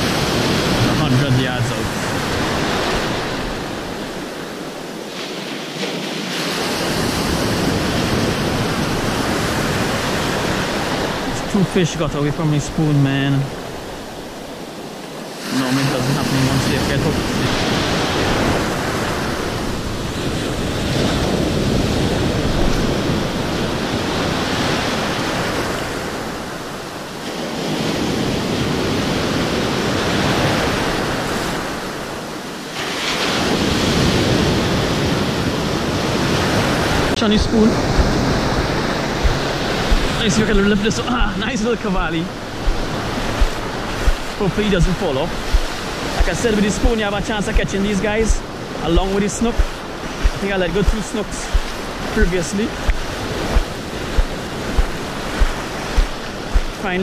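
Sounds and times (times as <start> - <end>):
ocean surf breaking: 0.0 - 57.0
wind buffeting microphone: 13.5 - 32.2, 33.4 - 57.0.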